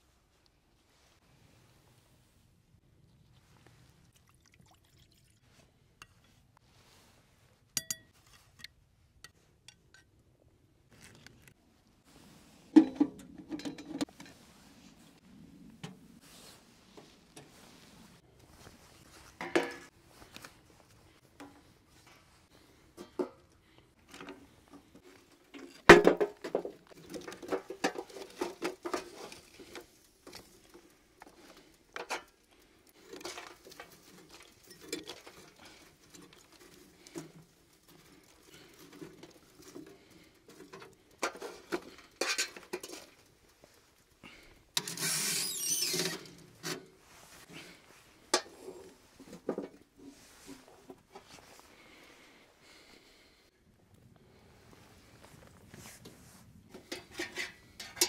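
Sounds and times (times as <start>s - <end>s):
dishes and utensils clattering: 12.8s - 14.4s.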